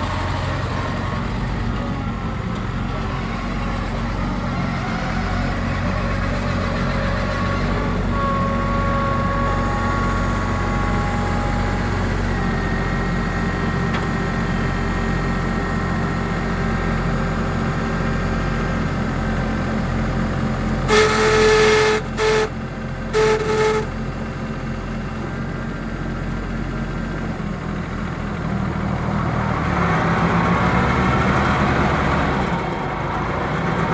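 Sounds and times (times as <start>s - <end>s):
tractor diesel engine idling: 0.0s - 33.9s
horn toots: 20.9s - 24.0s.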